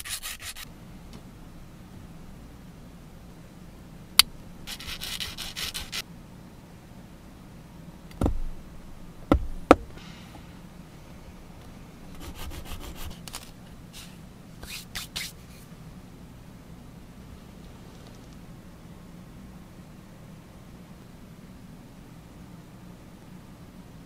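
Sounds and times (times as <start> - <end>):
plastic rubbed on metal file: 0.0 - 0.7, 4.7 - 6.0, 12.2 - 15.4
knife knocking on cutting mat: 8.2 - 8.5.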